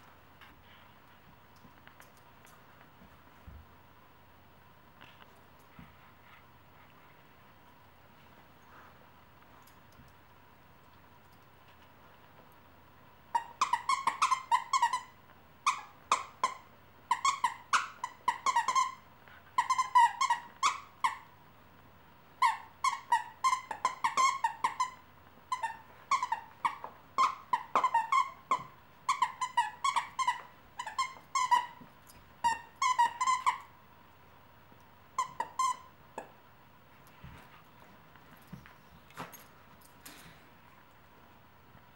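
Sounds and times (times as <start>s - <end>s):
squeaky dog toy squeaking: 13.3s - 19.0s, 19.6s - 21.3s, 22.4s - 31.8s, 32.4s - 33.7s, 35.2s - 36.0s.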